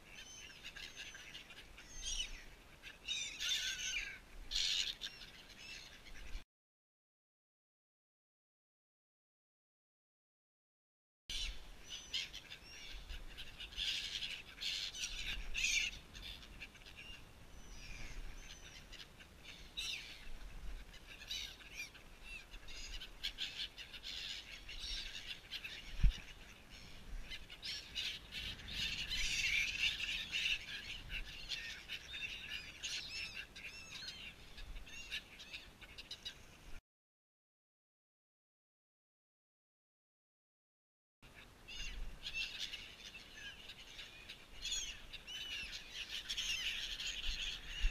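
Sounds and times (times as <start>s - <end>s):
gulls calling: 11.3s - 36.8s, 41.2s - 47.9s.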